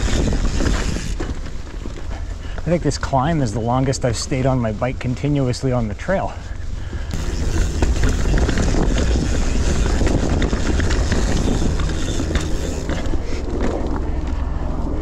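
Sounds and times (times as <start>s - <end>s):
bike rolling low rumble: 0.0s - 15.0s
bike clicks knocks and rattles: 7.1s - 14.4s.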